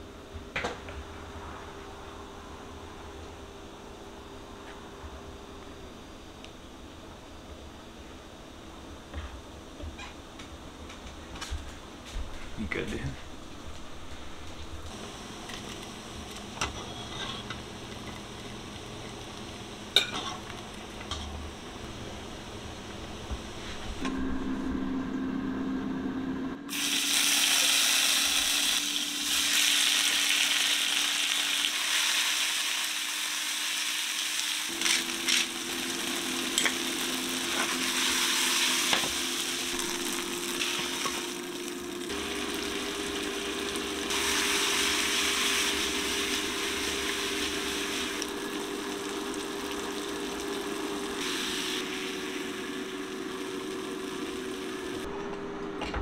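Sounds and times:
food sizzling in hot oil: 14.9 - 23.0, 26.7 - 55.1.

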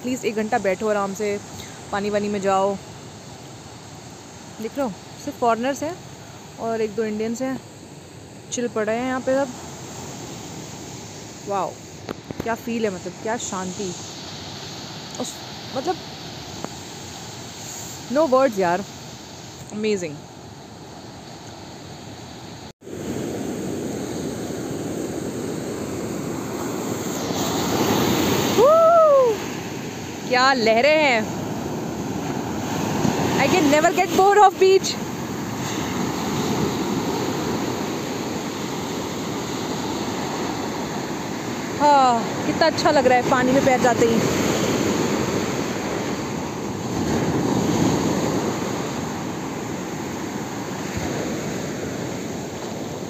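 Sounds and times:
surf rushing on beach: 0.0 - 53.0
person exclaiming: 28.6 - 29.4.

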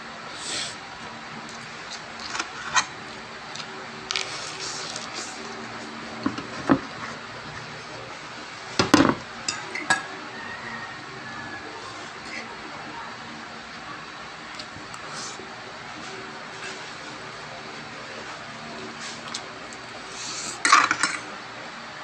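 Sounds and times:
steady low hum: 0.0 - 22.0
fork clinking against plate: 9.5 - 10.1.

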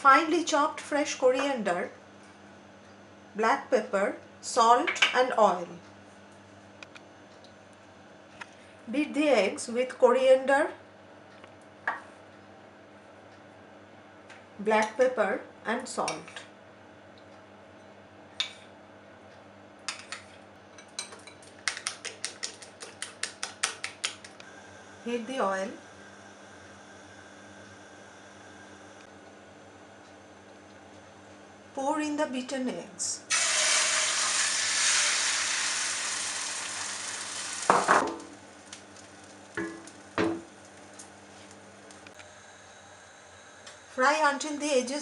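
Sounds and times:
egg sizzling in hot oil: 33.3 - 41.1.

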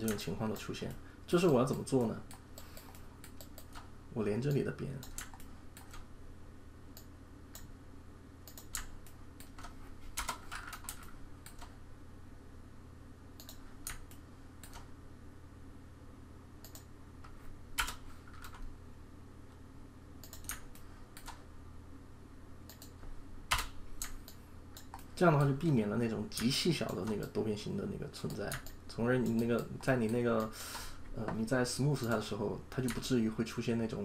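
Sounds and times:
computer mouse and keyboard clicks: 0.0 - 6.1, 8.4 - 11.7, 13.4 - 14.9, 16.6 - 18.7, 20.2 - 21.4, 22.7 - 25.6, 28.2 - 30.5
steady low hum: 0.0 - 34.0.

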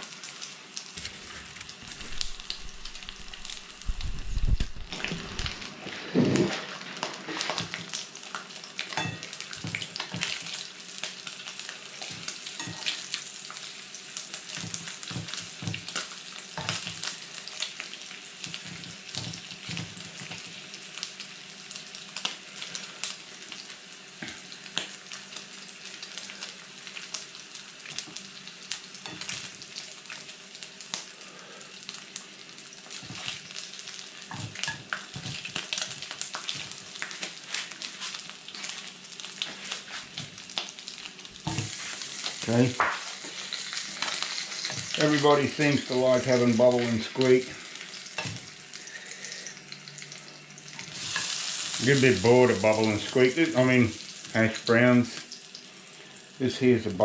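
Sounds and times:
bacon sizzling and popping: 0.0 - 57.0
tongs clicking and scraping pan: 12.0 - 13.1.

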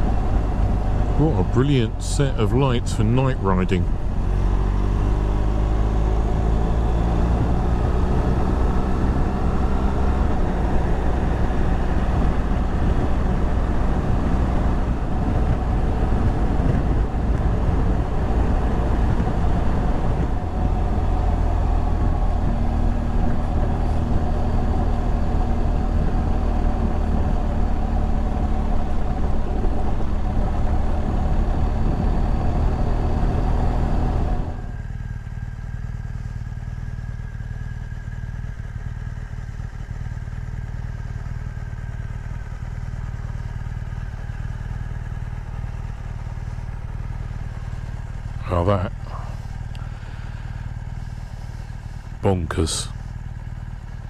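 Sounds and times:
motorcycle engine running: 0.0 - 54.0
wind noise at helmet: 12.0 - 21.1.

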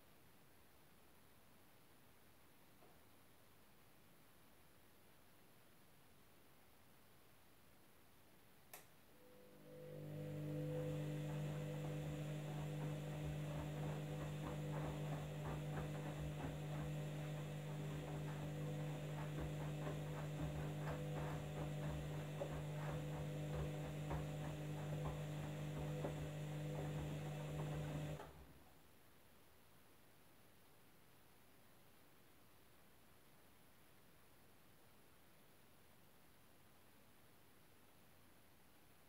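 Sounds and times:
washing machine motor humming: 9.2 - 28.5
laundry splashing and clicking: 10.5 - 28.3.

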